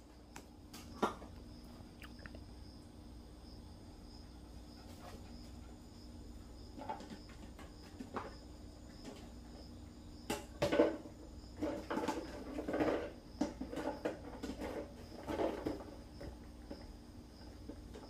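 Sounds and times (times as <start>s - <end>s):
faint steady hum: 0.0s - 18.0s
plastic jar knocking and scraping: 6.6s - 18.0s.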